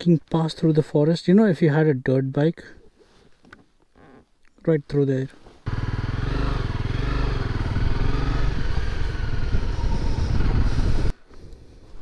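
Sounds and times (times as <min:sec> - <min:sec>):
motorcycle engine running: 0:05.7 - 0:11.1.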